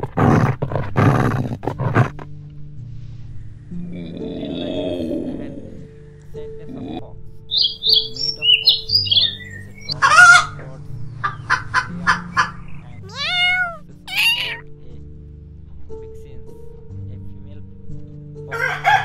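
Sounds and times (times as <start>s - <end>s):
chickens clucking and squawking: 7.6s - 10.6s, 11.2s - 14.6s.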